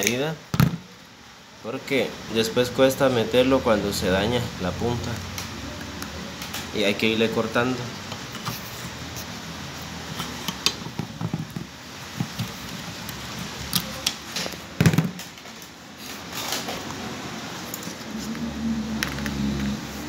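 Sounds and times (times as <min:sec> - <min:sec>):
loud thump: 0:00.5 - 0:00.9.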